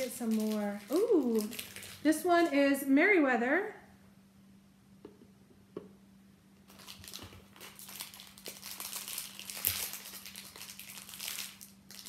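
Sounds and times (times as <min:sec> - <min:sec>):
packaging crinkling and rustling: 0:00.0 - 0:02.6, 0:06.7 - 0:12.0.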